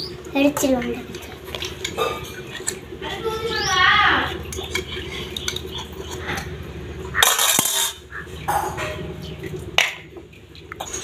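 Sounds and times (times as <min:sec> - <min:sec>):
metal clatter: 0:07.2 - 0:09.1.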